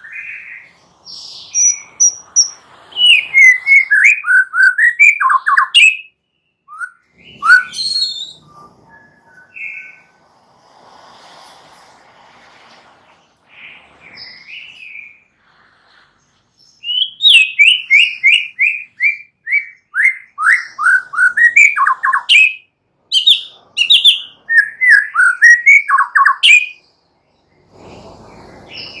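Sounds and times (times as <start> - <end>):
bird whistled song notes: 0.0 - 10.2, 16.6 - 29.0
bird soft chirps: 11.7 - 22.4.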